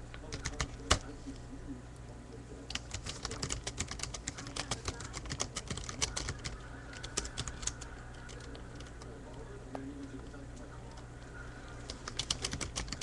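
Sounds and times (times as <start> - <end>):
steady low hum: 0.0 - 13.0
computer keyboard typing: 0.2 - 1.0, 2.7 - 9.4, 11.8 - 13.0.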